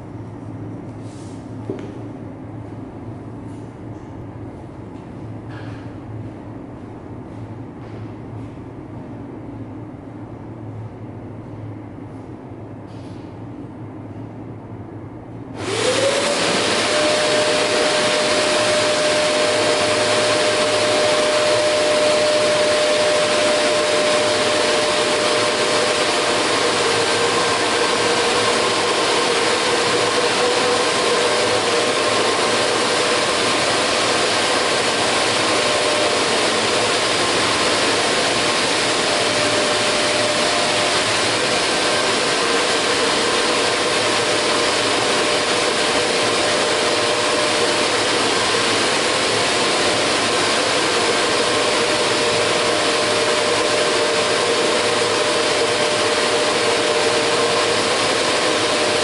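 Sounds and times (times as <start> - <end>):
air rushing through hose: 15.6 - 59.0
vacuum cleaner motor whine: 15.6 - 59.0.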